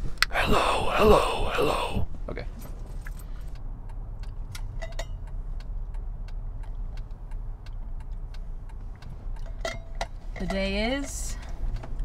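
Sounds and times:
engine and road rumble: 0:00.0 - 0:12.0
light evenly spaced ticks: 0:03.1 - 0:12.0.

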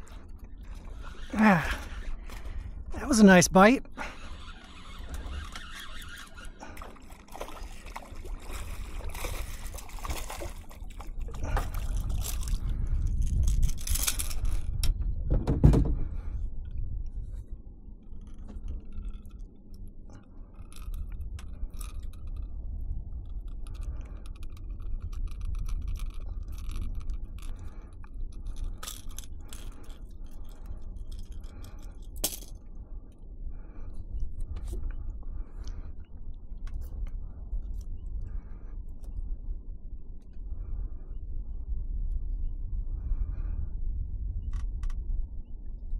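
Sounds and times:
fishing gear scraping and clicking: 0:03.9 - 0:07.6, 0:08.5 - 0:14.9, 0:18.0 - 0:32.6
low rumble: 0:08.0 - 0:45.9.

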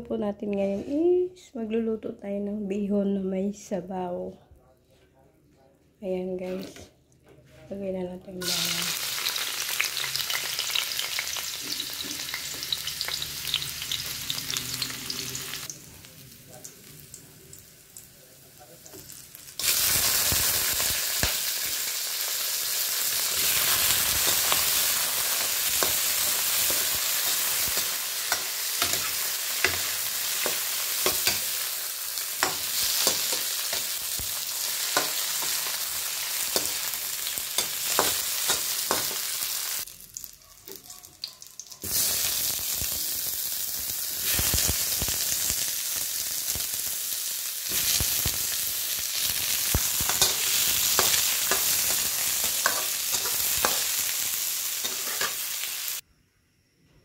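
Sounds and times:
food sizzling in hot oil: 0:08.4 - 0:56.0
metal spatula scraping pan: 0:54.8 - 0:55.4.

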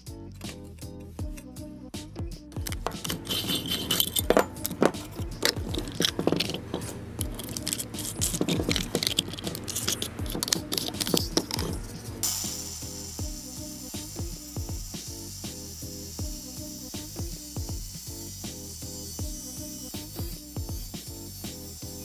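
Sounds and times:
metallic clinks and rattles: 0:02.6 - 0:12.4
brief hiss: 0:12.2 - 0:14.1.

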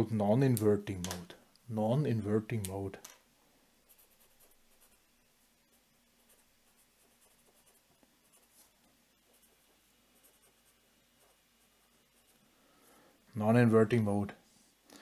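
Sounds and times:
pen scratching on paper: 0:03.9 - 0:05.0, 0:05.7 - 0:12.4.

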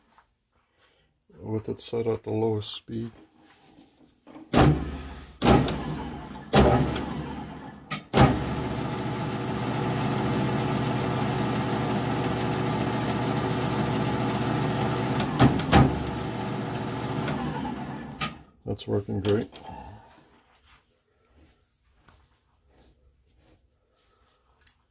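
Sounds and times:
lathe motor running: 0:05.6 - 0:18.3.

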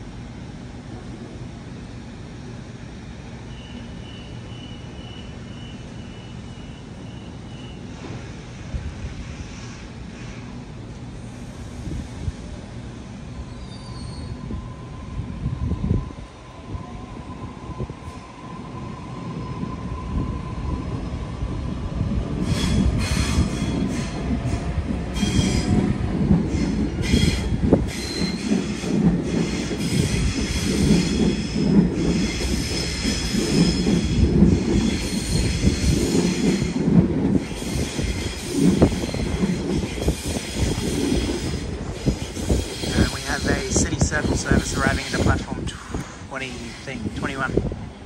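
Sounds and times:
train rumbling past: 0:00.0 - 0:48.0
wheel squeal: 0:13.4 - 0:14.4, 0:27.1 - 0:28.6.

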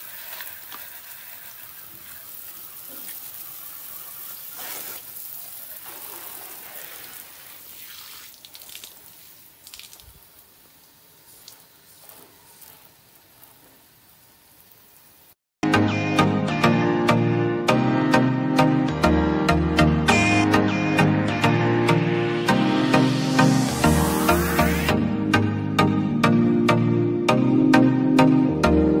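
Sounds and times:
water jet hissing and splashing: 0:00.0 - 0:15.4.

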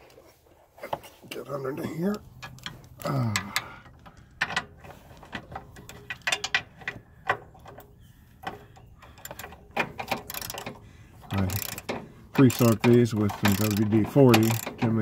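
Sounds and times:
socket ratchet clicking: 0:09.0 - 0:15.0.

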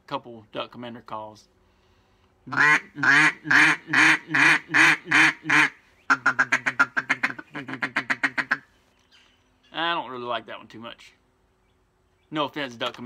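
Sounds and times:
duck call fast chatter: 0:02.5 - 0:08.6
duck call quacks: 0:02.5 - 0:08.7.

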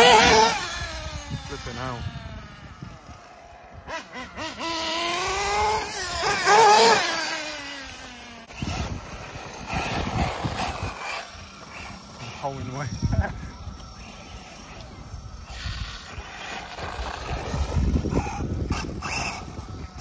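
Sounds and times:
rc car motor revving: 0:00.0 - 0:20.0.

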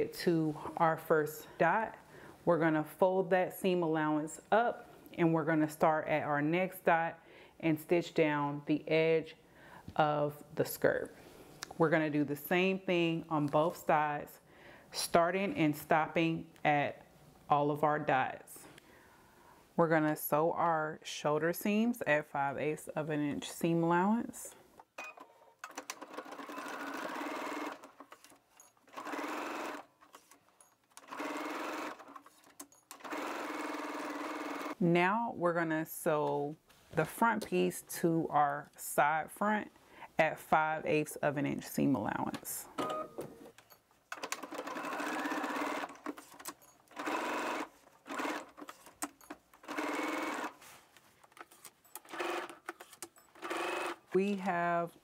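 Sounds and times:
sewing machine stitching: 0:25.0 - 0:34.8, 0:44.1 - 0:50.7, 0:51.4 - 0:54.2.

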